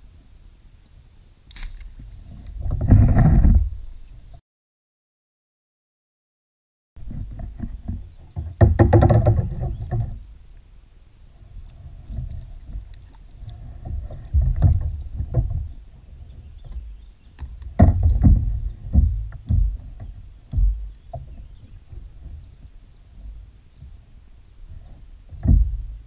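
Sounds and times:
thumps against plastic kayak hull: 0:07.2 - 0:10.2, 0:17.4 - 0:22.0, 0:25.3 - 0:26.0.

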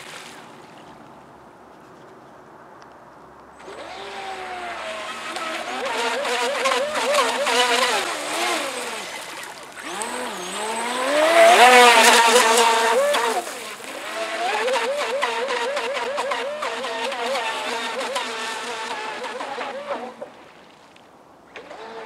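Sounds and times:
electric motor whining: 0:03.6 - 0:20.3, 0:21.6 - 0:22.0.

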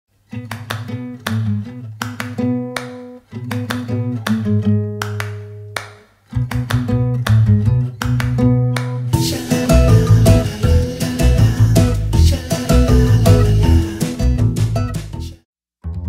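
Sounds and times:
plucked guitar: 0:00.3 - 0:15.3
bass line: 0:06.4 - 0:16.0.

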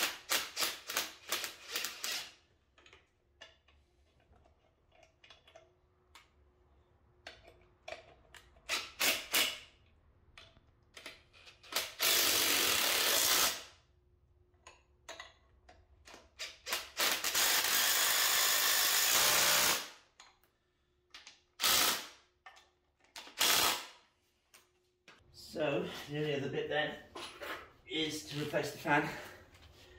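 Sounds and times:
cordless driver running bolts: 0:00.1 - 0:02.4.

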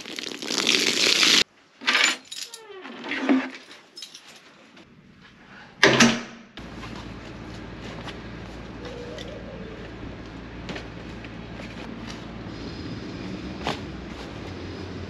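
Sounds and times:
outdoor background noise: 0:00.0 - 0:15.0
keys jangling: 0:01.9 - 0:02.7, 0:03.6 - 0:04.5.

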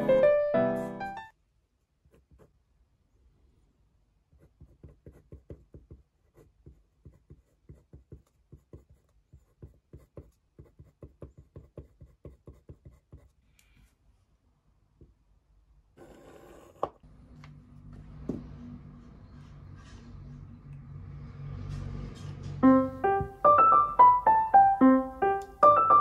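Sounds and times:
pen scratching on paper: 0:02.0 - 0:02.6, 0:04.3 - 0:13.4.

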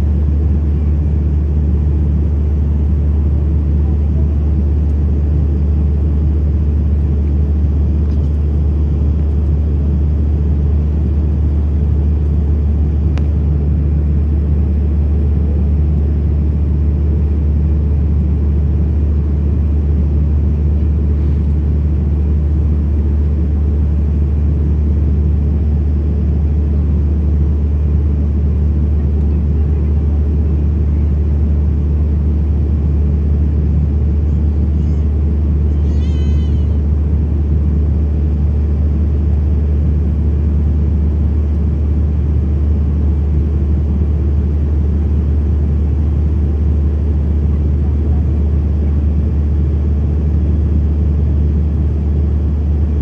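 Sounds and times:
airliner cabin roar: 0:00.0 - 0:53.0.

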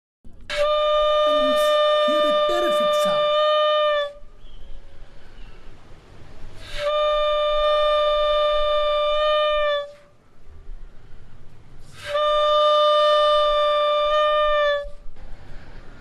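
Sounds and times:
balloon bugle blasts: 0:00.5 - 0:04.2, 0:11.9 - 0:15.0.

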